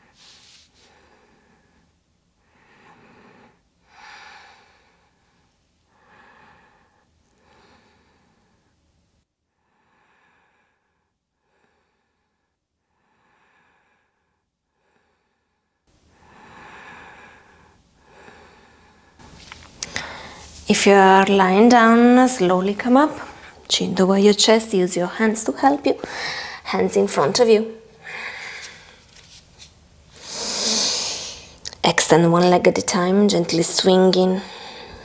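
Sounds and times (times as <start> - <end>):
woman breathing: 0.0 - 8.8, 9.6 - 20.6, 23.2 - 23.7, 26.0 - 26.7, 27.8 - 29.3, 30.1 - 31.6, 34.4 - 35.0.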